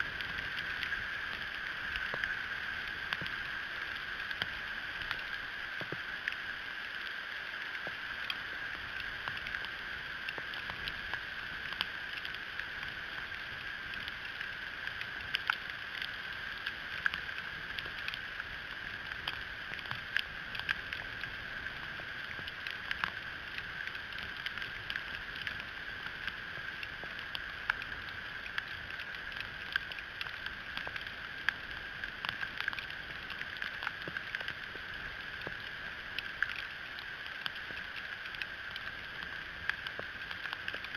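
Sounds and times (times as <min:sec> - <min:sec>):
ice pellets ticking: 0:19.2 - 0:40.9.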